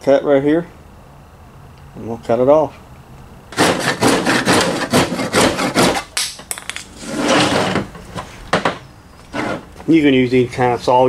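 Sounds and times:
saw cutting plastic pipe: 3.5 - 6.2.

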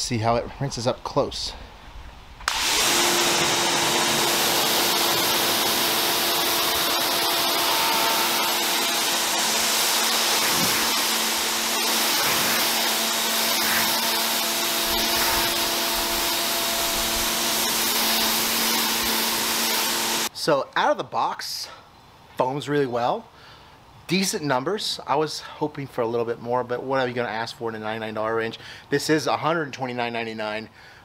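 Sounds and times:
pressure washer motor hum: 2.5 - 20.3
water jet hissing: 2.5 - 20.3.

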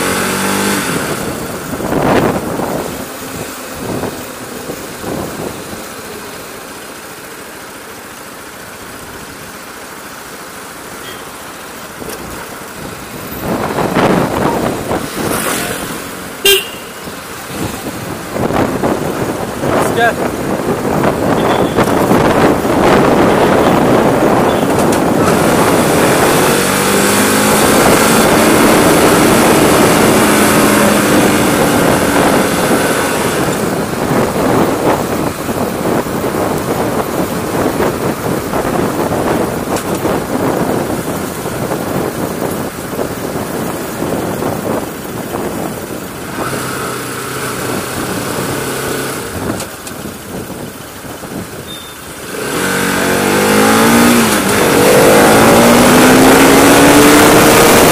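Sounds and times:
wind rushing over microphone: 0.0 - 6.5, 12.0 - 57.9
motorcycle engine running: 0.0 - 57.9.

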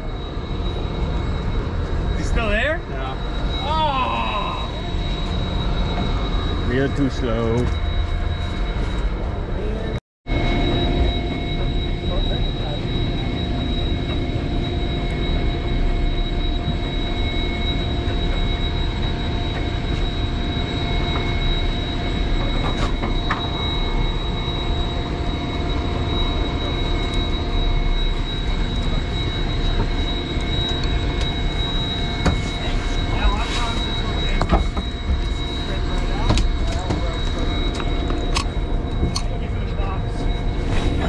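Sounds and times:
high whining tones: 0.0 - 41.0.

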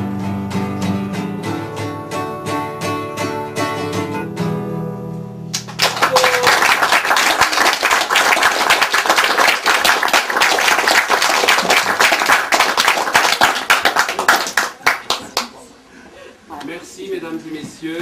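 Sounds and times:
audience applauding: 5.6 - 15.6.

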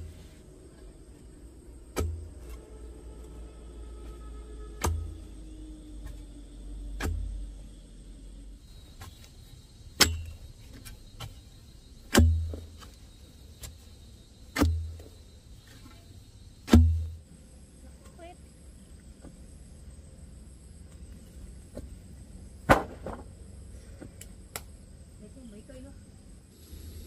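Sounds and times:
tool striking wood: 2.0 - 2.2, 4.8 - 5.1, 10.0 - 10.4, 12.1 - 12.6, 14.6 - 15.1, 16.7 - 17.1.

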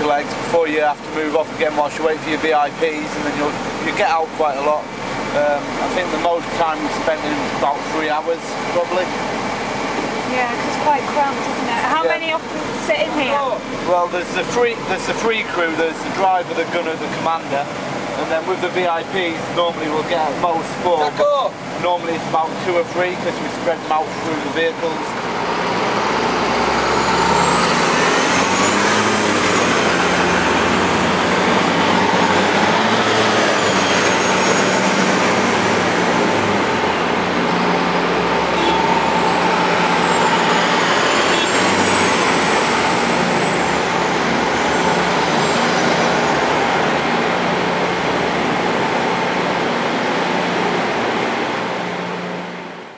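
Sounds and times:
heavy vehicle engines humming: 0.0 - 52.9
loud rushing noise: 8.4 - 52.9
high thin whines: 24.6 - 47.1.

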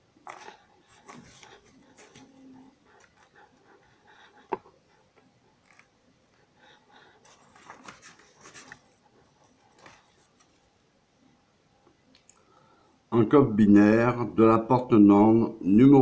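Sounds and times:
faint scratching and handling: 0.2 - 10.7.

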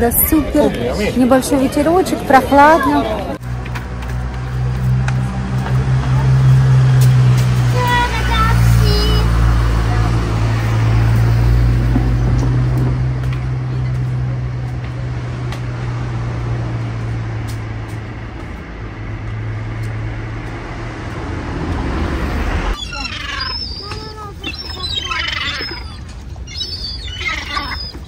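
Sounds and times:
street noise: 0.0 - 28.0
vehicle engine humming: 0.0 - 28.0
birds chirping: 7.6 - 21.0, 22.5 - 28.0.

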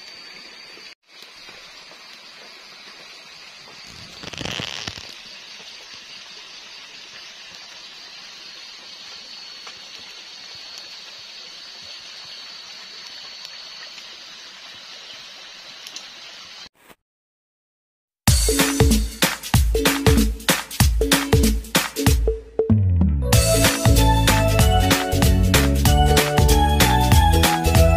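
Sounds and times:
campfire hissing: 0.0 - 16.7
fire popping: 3.7 - 5.3.

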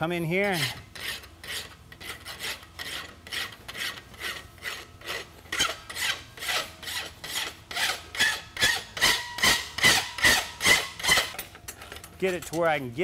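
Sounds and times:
hand file rasping on steel: 0.4 - 11.3.

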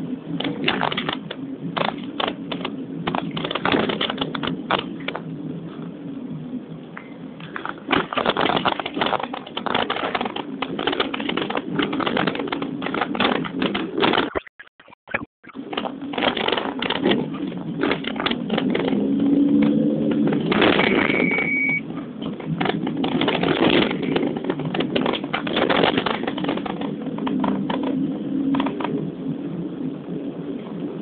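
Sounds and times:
vehicle rumbling on rough road: 0.0 - 14.4, 15.5 - 31.0
rapid rattling and clicking: 0.2 - 5.3, 7.4 - 14.4, 15.6 - 21.2, 21.8 - 29.2.

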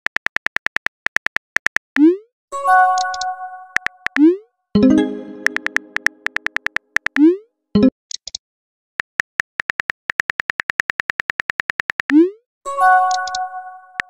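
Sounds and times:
keyboard tap clicks: 3.0 - 4.3, 5.2 - 7.2
chime: 4.8 - 5.8.

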